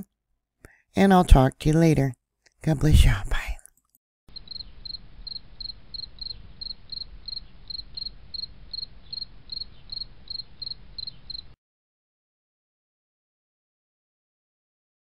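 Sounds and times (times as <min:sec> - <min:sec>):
insect chirping: 0:04.3 - 0:11.6.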